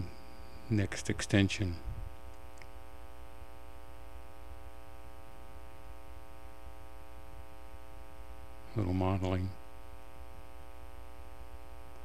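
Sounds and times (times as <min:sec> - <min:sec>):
faint hiss: 0:00.0 - 0:06.6
electrical mains hum: 0:00.0 - 0:12.0.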